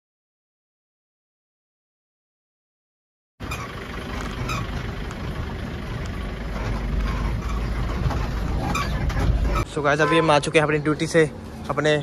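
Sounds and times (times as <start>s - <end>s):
vehicle engine and road noise: 3.4s - 12.0s.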